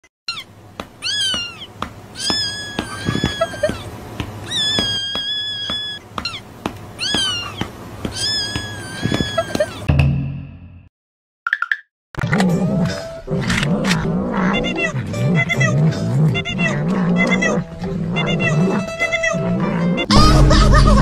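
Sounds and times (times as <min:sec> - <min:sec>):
cat meowing: 0:00.3 - 0:09.9, 0:14.5 - 0:20.1.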